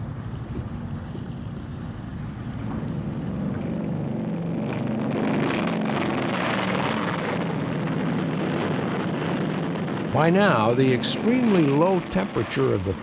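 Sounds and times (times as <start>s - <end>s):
aircraft piston engines droning: 0.0s - 5.0s.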